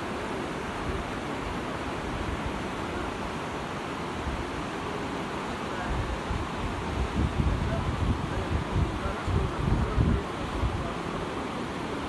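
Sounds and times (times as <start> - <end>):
rushing outdoor noise: 0.0 - 12.0
wind buffeting microphone: 5.8 - 11.3.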